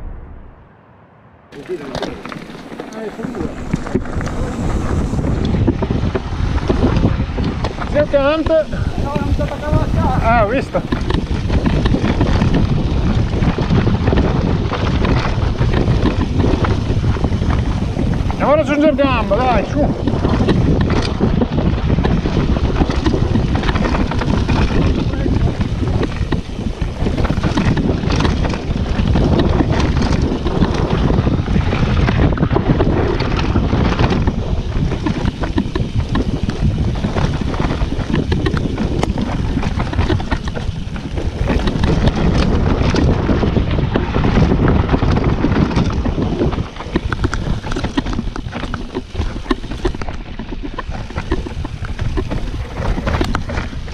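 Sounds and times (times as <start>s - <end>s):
wind buffeting microphone: 0.0s - 53.9s
bike clattering over bumps: 1.5s - 53.9s
tyres rumbling on dirt: 1.5s - 53.9s.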